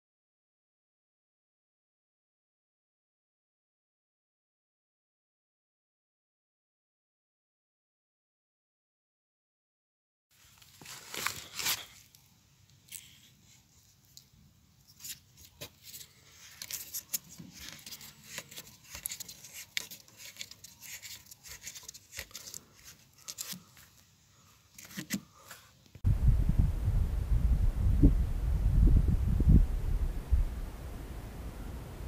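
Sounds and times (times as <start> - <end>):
loud low rushing noise: 26.1 - 32.0.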